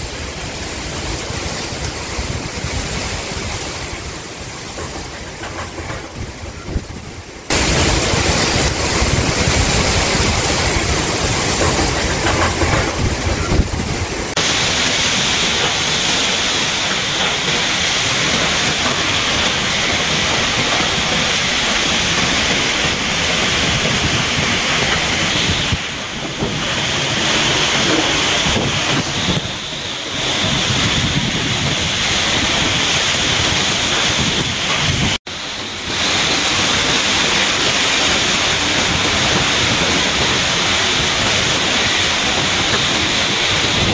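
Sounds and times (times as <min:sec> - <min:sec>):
storm wind and rain rushing: 0:00.0 - 0:43.9
wind gusts buffeting microphone: 0:00.2 - 0:14.5, 0:15.4 - 0:35.2, 0:36.6 - 0:43.9.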